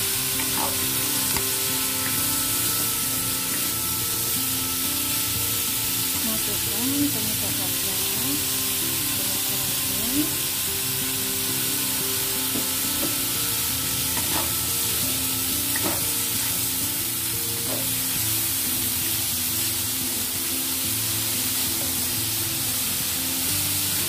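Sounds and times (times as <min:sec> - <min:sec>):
spatula scraping a pan: 0:00.0 - 0:06.7, 0:10.3 - 0:18.2
vegetables sizzling in hot oil: 0:00.0 - 0:24.0.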